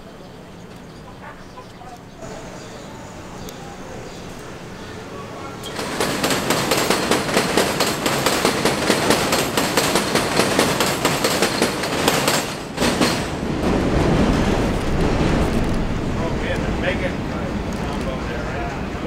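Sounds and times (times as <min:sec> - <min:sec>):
low train rumble: 0:00.0 - 0:19.0
train wheels clattering over rails: 0:05.6 - 0:19.0.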